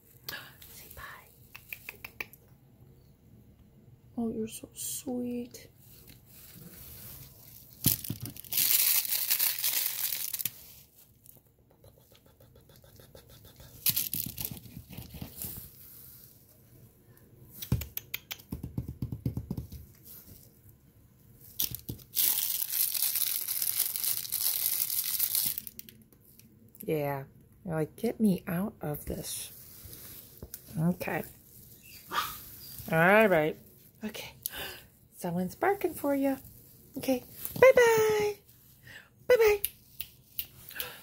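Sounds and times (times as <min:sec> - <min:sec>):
rustling and crinkling of nylon: 0:05.8 - 0:11.3, 0:21.4 - 0:25.9.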